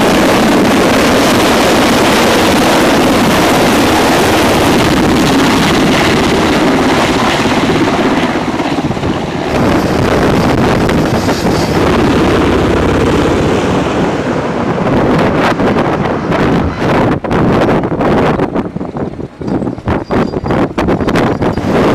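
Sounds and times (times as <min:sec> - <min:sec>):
wind rumble on microphone: 0:00.0 - 0:21.9
vehicle engines: 0:09.5 - 0:21.9.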